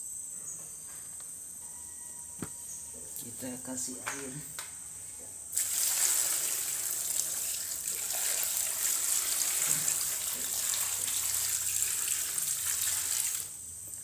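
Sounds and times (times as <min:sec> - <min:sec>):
water splashing into a bowl: 0:05.6 - 0:13.6.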